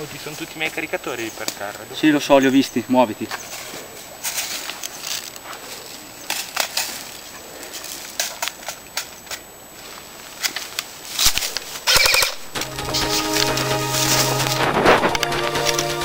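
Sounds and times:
airsoft rifle shots: 11.8 - 12.6.

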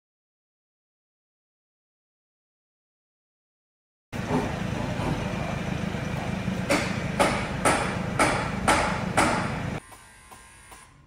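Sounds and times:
car engine rumbling: 4.2 - 9.8.

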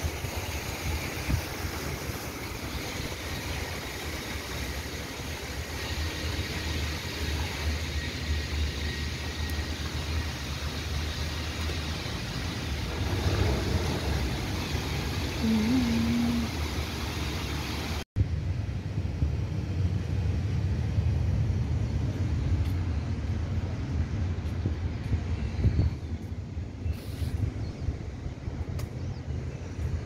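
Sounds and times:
fountain jets splashing: 0.0 - 18.0
wind buffeting microphone: 18.2 - 30.0.

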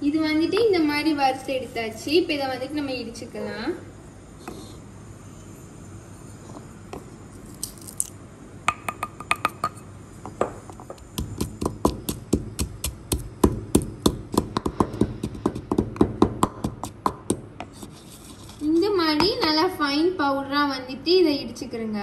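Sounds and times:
stone pestle pounding in mortar: 8.7 - 9.8, 10.4 - 17.8.

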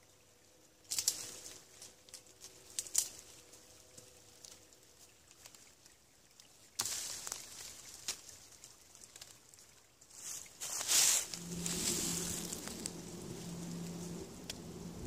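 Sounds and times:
knife scraping branch: 10.6 - 14.2.

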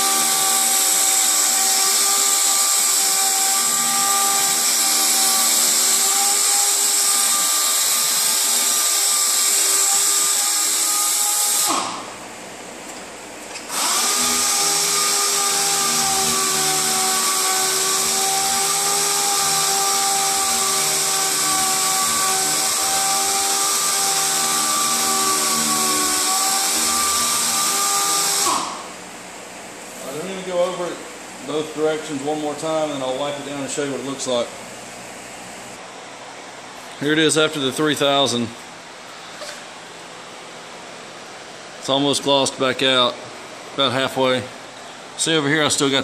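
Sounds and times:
air sander whining: 0.0 - 35.9.

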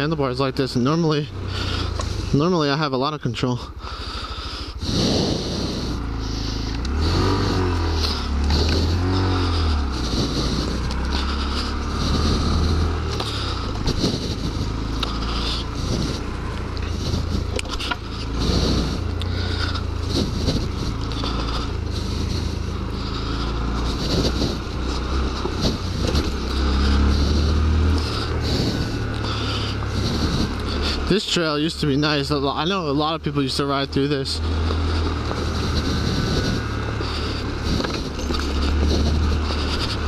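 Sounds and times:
motorcycle engine revving: 0.0 - 40.0
wind noise on microphone: 13.7 - 14.8, 19.9 - 21.0, 23.7 - 30.7, 34.4 - 40.0.

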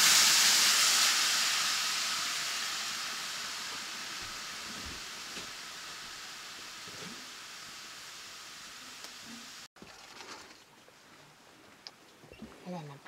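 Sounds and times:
water hissing in hot pan: 0.0 - 9.7.

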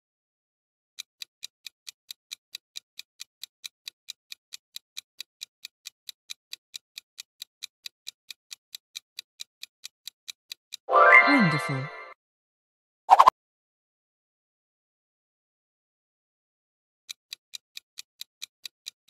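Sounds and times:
countdown timer ticking: 10.9 - 12.2.

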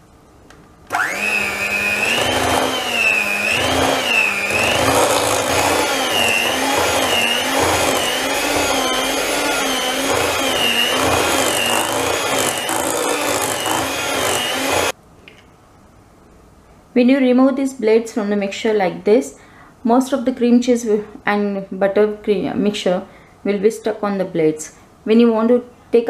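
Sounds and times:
electric hand mixer whining: 0.9 - 15.0.

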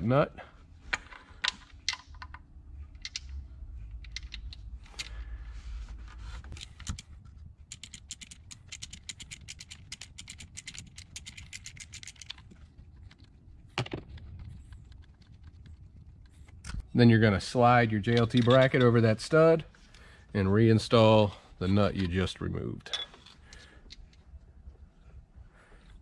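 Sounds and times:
socket ratchet clicking: 7.7 - 12.5.

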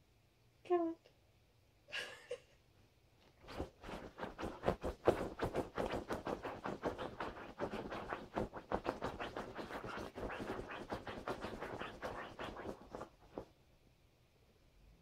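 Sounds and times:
puppy scratching at duvet: 3.4 - 13.5.

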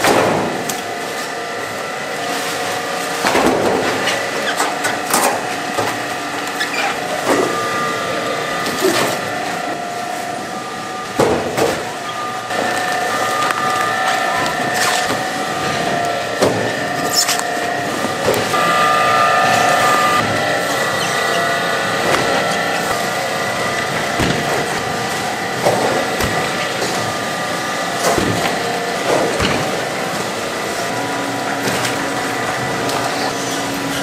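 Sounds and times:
machine whine: 0.0 - 34.0
knocks and thuds of cabbages: 24.0 - 25.0, 25.6 - 26.9, 28.0 - 29.8.

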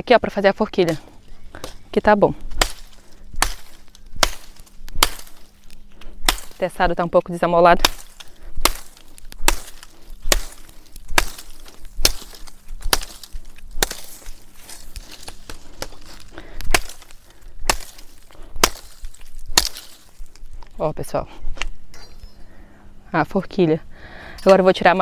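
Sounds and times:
machete chopping sapling: 0.8 - 20.5.

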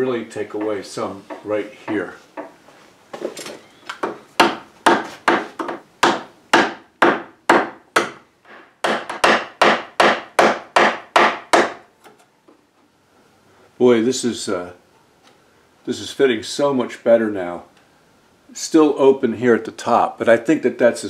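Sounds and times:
chisel paring wood: 0.5 - 2.6, 3.9 - 12.2.

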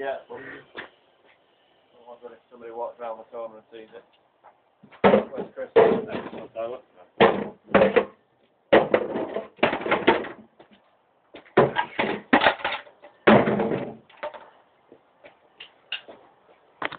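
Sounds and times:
hammer breaking boxes: 11.6 - 14.0.

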